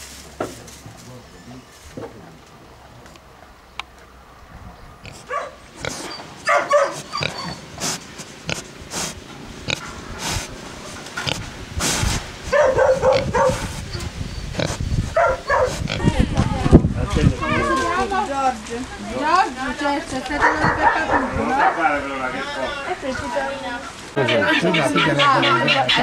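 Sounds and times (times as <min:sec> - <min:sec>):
pig grunting and snorting: 0:05.0 - 0:06.2, 0:06.9 - 0:10.6, 0:11.2 - 0:12.2, 0:13.0 - 0:16.1.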